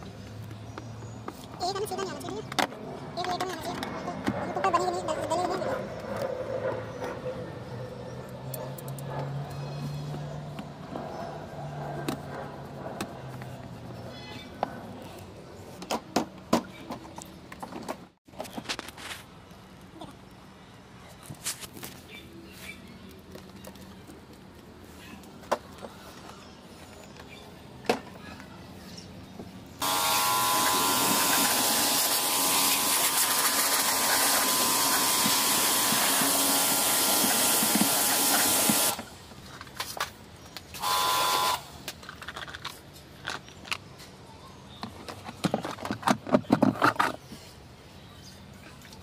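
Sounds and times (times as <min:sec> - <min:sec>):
pressure washer spraying water: 0:29.8 - 0:39.1, 0:40.8 - 0:41.7.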